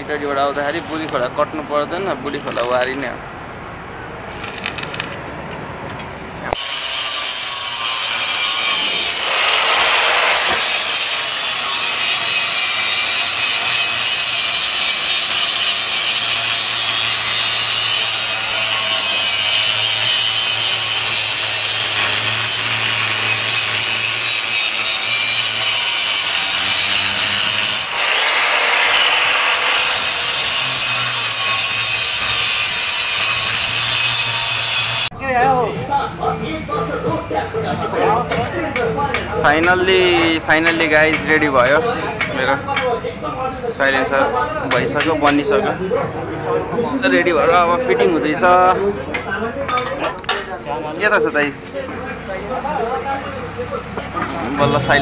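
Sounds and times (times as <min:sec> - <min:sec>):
angle grinder cutting steel pipe: 0:00.4 - 0:01.4, 0:02.2 - 0:03.1, 0:06.5 - 0:35.1.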